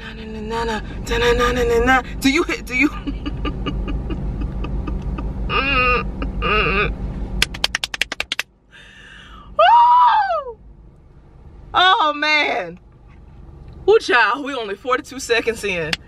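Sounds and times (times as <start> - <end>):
hi-hat pattern: 7.4 - 8.4
rapid stutter of clicks: 7.4 - 8.5.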